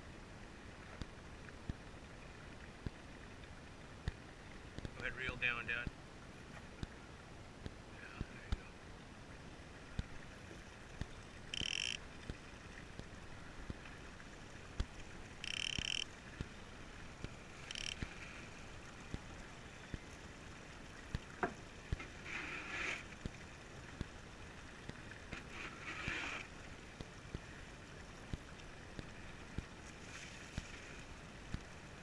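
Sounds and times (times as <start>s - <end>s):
fishing reel drag bursts: 11.5s - 12.0s, 15.4s - 16.0s, 17.7s - 18.0s.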